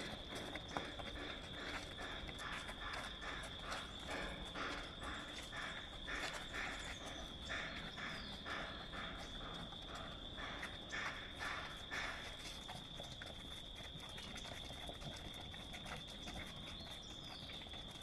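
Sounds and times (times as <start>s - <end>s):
high insect drone: 0.0s - 14.3s.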